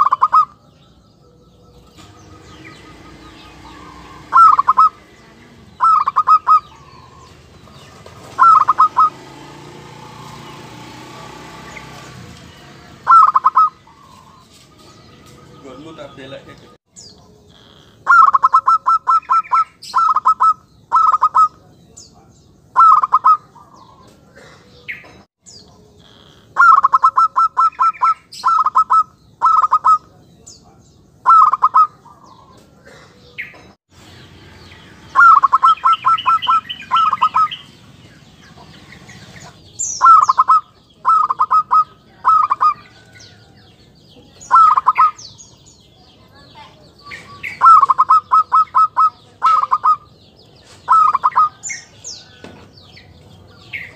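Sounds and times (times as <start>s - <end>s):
dove rapid staccato cooing: 0.0s - 0.6s, 2.2s - 5.1s, 5.7s - 9.3s, 13.0s - 14.4s, 18.0s - 21.5s, 22.8s - 24.8s, 26.6s - 30.0s, 31.2s - 33.4s, 35.2s - 37.6s, 39.4s - 42.8s, 44.4s - 45.2s, 47.5s - 50.1s, 50.8s - 51.6s.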